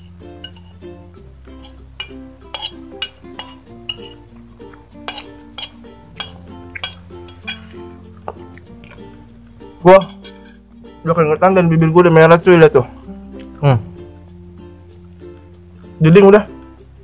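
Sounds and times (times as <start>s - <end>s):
cutlery clinking on ceramic plate: 0.0s - 0.8s, 1.6s - 4.2s, 5.0s - 7.8s, 9.9s - 10.6s
background music with sustained chords: 0.0s - 17.0s.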